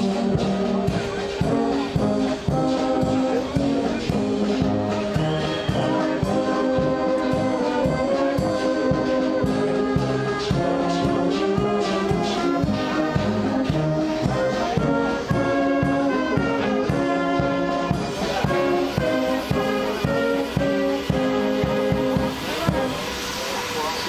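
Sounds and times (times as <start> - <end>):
brass band playing: 0.0 - 24.0.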